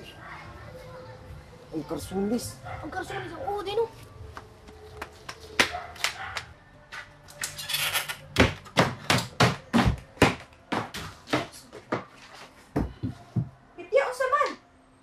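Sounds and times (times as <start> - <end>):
footsteps on wooden floor: 8.4 - 13.6.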